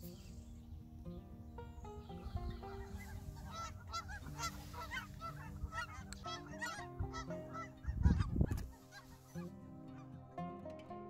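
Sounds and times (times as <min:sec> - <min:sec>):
geese honking: 0:02.0 - 0:10.4.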